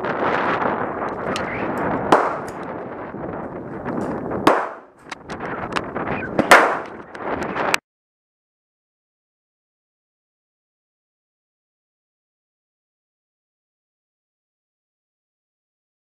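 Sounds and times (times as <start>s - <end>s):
faint gunshots: 2.1s - 2.5s, 4.5s - 4.8s, 6.4s - 6.9s
loud revolver shots: 2.1s - 2.6s, 4.5s - 4.9s, 6.4s - 7.0s.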